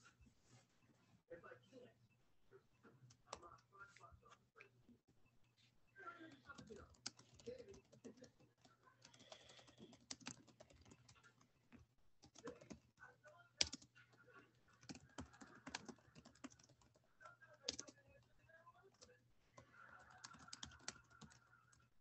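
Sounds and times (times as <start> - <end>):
typing on keyboard: 6.2 - 14.2, 14.8 - 18.3, 18.9 - 21.9.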